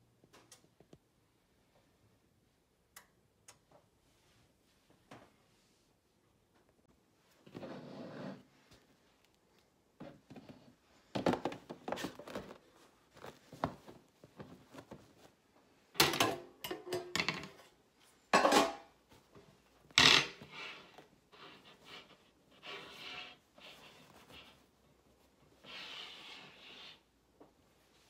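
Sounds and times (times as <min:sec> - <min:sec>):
metal pans clattering on countertop: 0:16.0 - 0:19.0.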